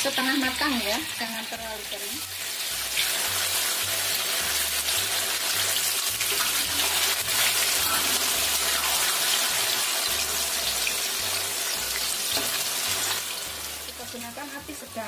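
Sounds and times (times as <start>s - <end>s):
tofu deep-frying in hot oil: 0.0s - 15.0s.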